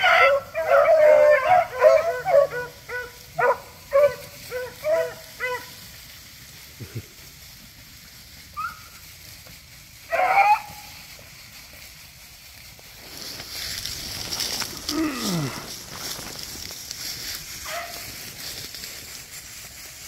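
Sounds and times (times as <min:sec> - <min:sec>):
dogs yipping and barking: 0:00.0 - 0:05.8, 0:08.6 - 0:09.0, 0:10.1 - 0:11.0, 0:17.6 - 0:18.1.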